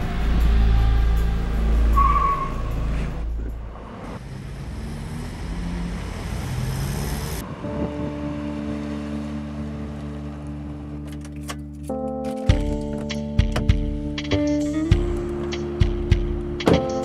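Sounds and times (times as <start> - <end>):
tire squeal: 0.0 - 3.3
truck engine and road noise: 0.0 - 17.0.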